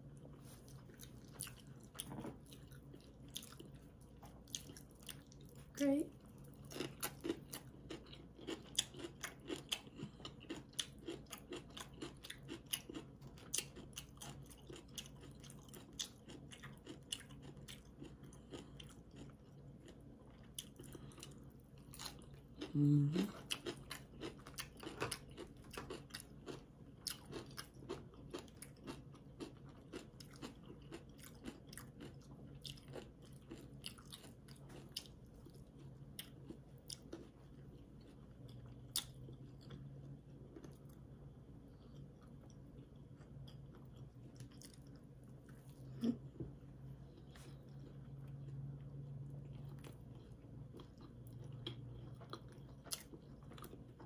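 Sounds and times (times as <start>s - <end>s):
chewing crunchy food: 0.0s - 54.0s
low vocal sound: 22.7s - 23.3s.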